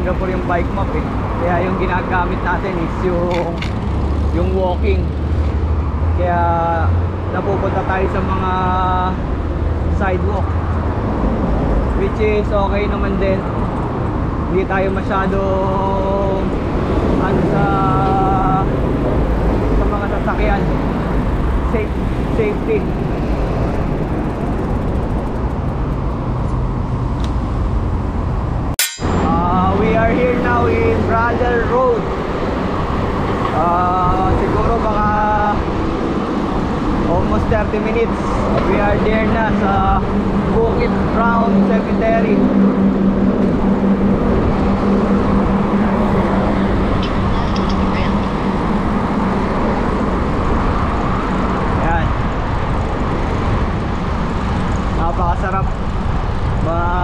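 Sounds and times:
road traffic rumble: 0.0 - 57.0
vehicle engine hum: 0.0 - 57.0
sharp click: 28.8 - 29.2.

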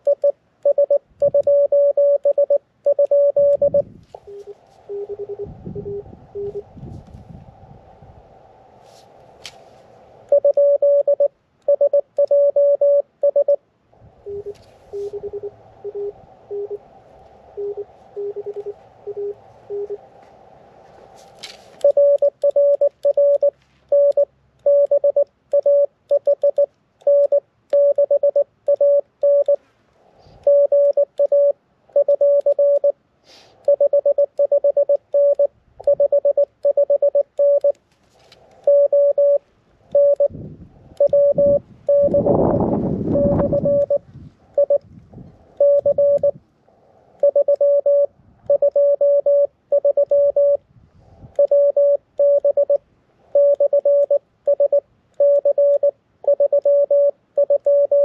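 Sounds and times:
high morse sidetone beeps: 0.0 - 6.7, 10.3 - 13.6, 14.2 - 16.8, 17.6 - 20.0, 21.8 - 29.6, 30.4 - 32.9, 33.7 - 37.8, 38.6 - 40.4, 41.0 - 42.5, 43.1 - 44.0, 44.6 - 44.8, 45.6 - 46.4, 47.2 - 50.6, 51.4 - 52.8, 53.4 - 58.0
faint lower morse signal: 0.0 - 8.2, 10.2 - 29.6, 30.3 - 33.0, 33.6 - 37.8, 38.5 - 44.9, 45.5 - 46.4, 47.2 - 50.6, 51.3 - 58.0.

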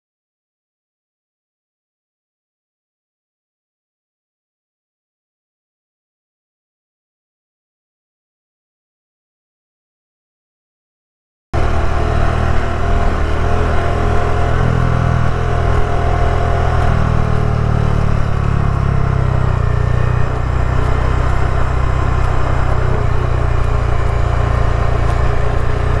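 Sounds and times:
motorcycle engine running: 11.6 - 26.0.

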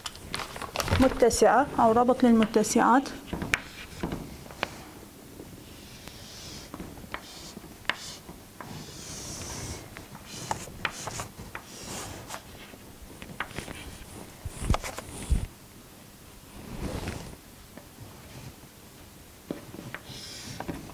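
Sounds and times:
chalk scratching on chalkboard: 3.5 - 4.1, 5.7 - 12.5, 20.0 - 20.6.

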